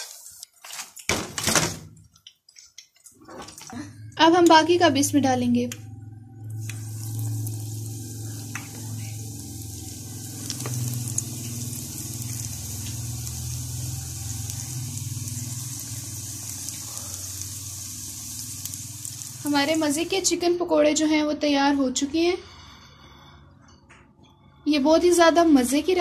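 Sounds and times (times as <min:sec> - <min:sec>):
food deep-frying in oil: 0:00.0 - 0:01.2, 0:06.5 - 0:20.5.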